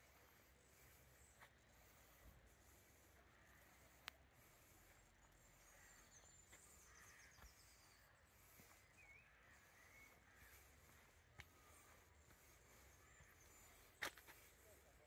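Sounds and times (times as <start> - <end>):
faint birdsong: 0.0 - 15.0.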